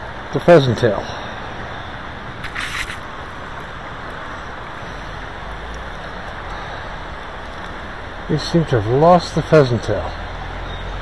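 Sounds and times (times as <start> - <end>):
river water flowing: 0.9 - 11.0
short rustle: 2.4 - 3.1.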